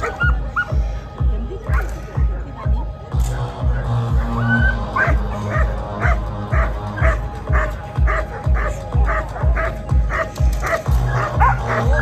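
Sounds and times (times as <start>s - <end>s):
loud music with heavy beat: 0.0s - 12.0s
dog barking: 5.0s - 11.9s.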